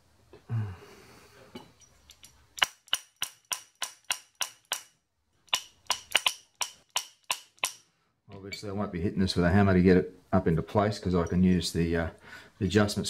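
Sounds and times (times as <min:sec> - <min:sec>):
mallet tapping on steel: 0:02.6 - 0:04.9.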